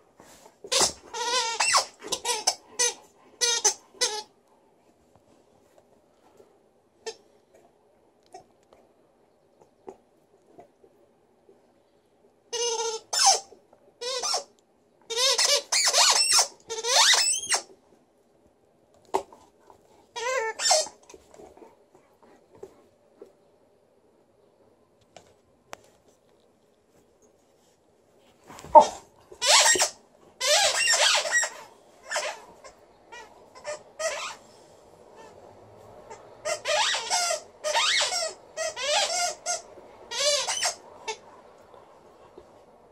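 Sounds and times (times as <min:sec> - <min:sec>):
rubber toy squeaking: 0:00.7 - 0:04.3, 0:12.5 - 0:14.5, 0:15.1 - 0:17.7, 0:20.1 - 0:21.0, 0:28.8 - 0:34.4, 0:36.1 - 0:41.2.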